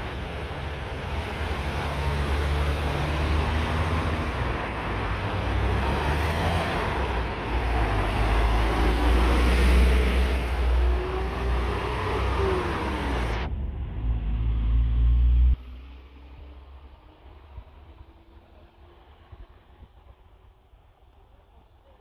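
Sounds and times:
cars driving past: 0.0s - 19.9s
low rumble: 13.2s - 16.0s.

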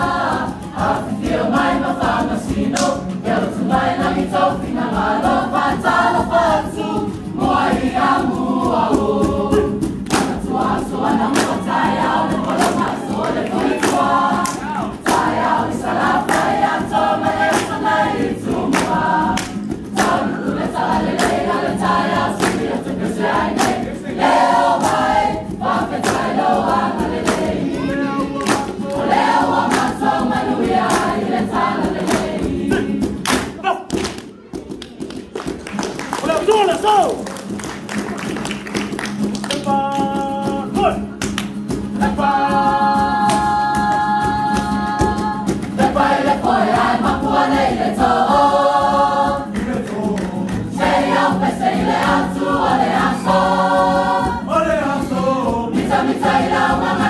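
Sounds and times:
group singing in chorus: 0.0s - 33.8s, 39.0s - 57.0s
sharp hand claps: 2.7s - 3.2s, 10.0s - 10.4s, 11.3s - 11.7s, 12.4s - 15.4s, 16.2s - 16.6s, 17.4s - 17.9s, 18.7s - 20.3s, 21.2s - 21.5s, 22.3s - 22.8s, 23.5s - 24.0s, 26.0s - 26.4s, 27.2s - 27.6s, 28.3s - 29.0s, 29.7s - 30.0s, 30.8s - 31.2s, 32.0s - 32.5s, 33.1s - 41.8s, 49.5s - 50.7s.

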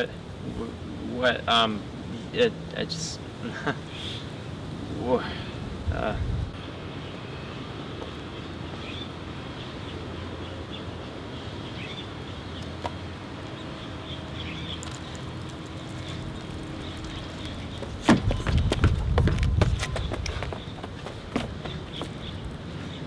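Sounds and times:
street ambience: 0.0s - 23.0s
scuffling footsteps: 17.6s - 22.2s.

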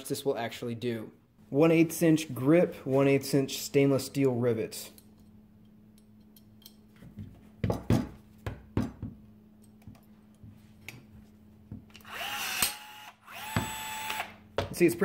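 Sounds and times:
metallic clicks and clinks: 4.9s - 6.9s
rivet tool motor whirring: 12.0s - 14.4s.

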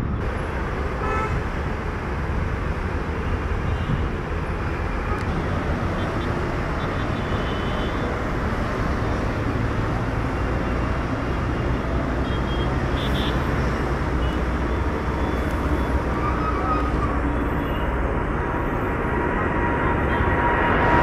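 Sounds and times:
jet engines deep rumble: 0.0s - 12.2s, 16.8s - 21.0s.

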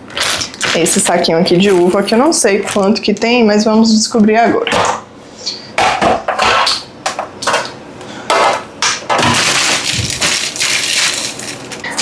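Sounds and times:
plastic bag crinkling: 9.2s - 12.0s.

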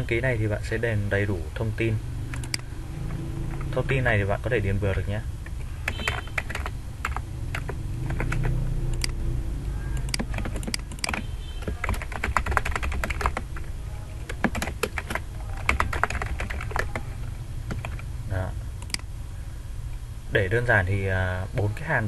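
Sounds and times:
low hum: 2.0s - 4.4s, 6.6s - 11.0s
typing on computer keyboard: 5.8s - 9.2s, 10.0s - 17.1s, 17.7s - 18.0s.

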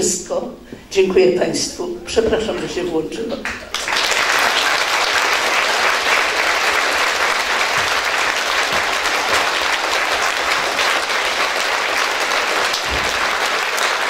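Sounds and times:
crowd clapping: 3.4s - 14.0s.

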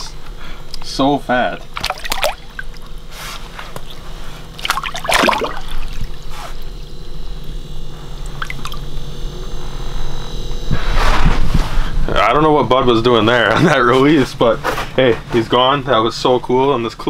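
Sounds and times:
water splashing: 1.6s - 3.0s, 3.7s - 7.6s, 8.2s - 9.0s.

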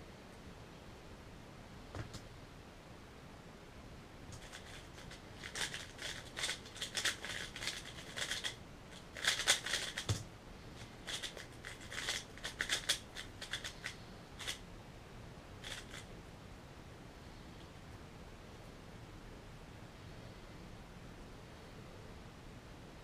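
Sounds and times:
puzzle cube turning clicks: 4.3s - 10.2s, 11.0s - 14.6s, 15.6s - 16.1s.

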